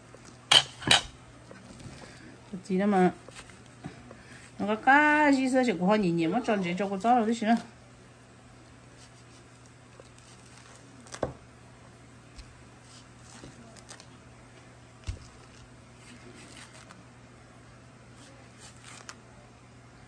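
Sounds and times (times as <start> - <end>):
peel tearing and squishing: 15.0 - 17.0.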